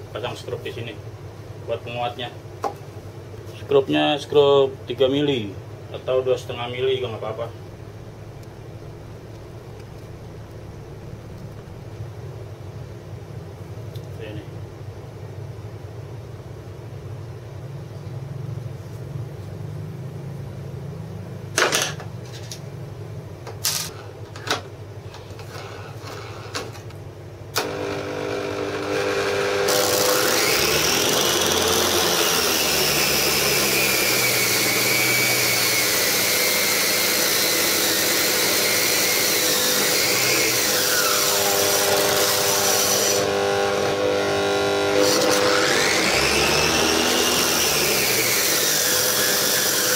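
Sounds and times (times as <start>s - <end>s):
angle grinder high whine: 27.6s - 49.9s.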